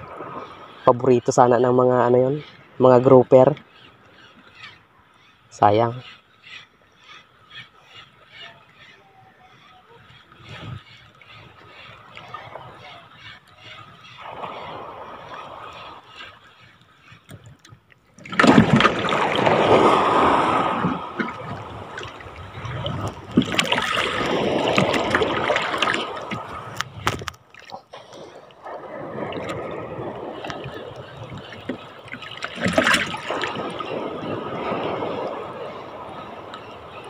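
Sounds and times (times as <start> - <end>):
sea water washing against shore: 10.1 - 37.0.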